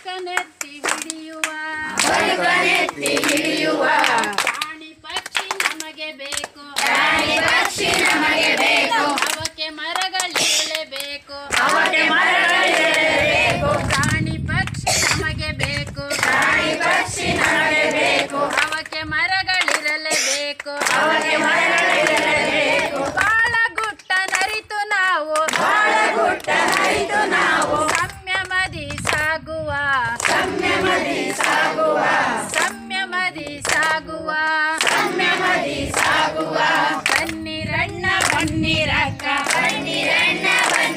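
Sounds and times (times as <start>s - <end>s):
group singing in chorus: 0.0s - 4.5s, 6.6s - 9.4s, 10.4s - 15.0s, 15.6s - 18.9s, 20.0s - 23.3s, 25.4s - 28.5s, 30.0s - 40.9s
sharp clicks or claps: 0.6s - 16.6s, 19.6s - 22.3s, 27.6s - 29.3s, 33.4s - 36.2s, 37.0s - 37.4s, 38.2s - 38.6s, 40.6s - 40.9s
person singing: 32.6s - 34.8s.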